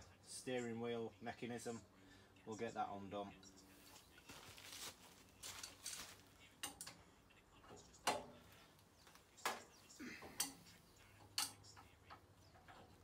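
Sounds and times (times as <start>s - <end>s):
spanner clicking and scraping on metal: 6.6s - 7.0s, 10.2s - 13.0s.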